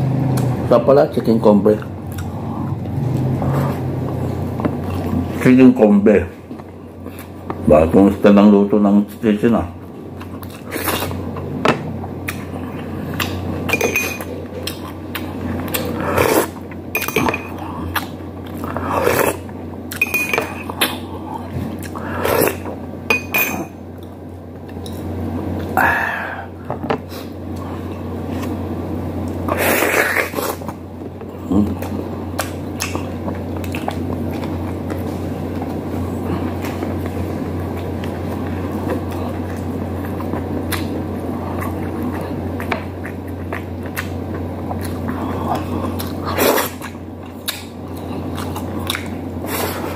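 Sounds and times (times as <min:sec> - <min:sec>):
steady low hum: 0:00.0 - 0:49.9
chewing and mouth smacks: 0:01.8 - 0:05.4, 0:14.2 - 0:16.8, 0:29.2 - 0:49.9.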